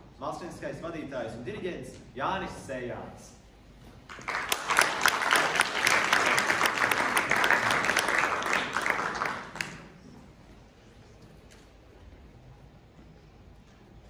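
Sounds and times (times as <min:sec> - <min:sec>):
audience applauding: 0:04.1 - 0:10.1.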